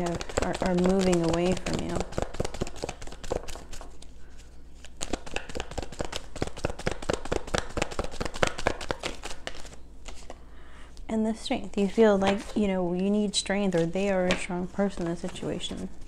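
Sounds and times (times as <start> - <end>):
cards being shuffled: 0.0 - 10.4, 11.8 - 12.7.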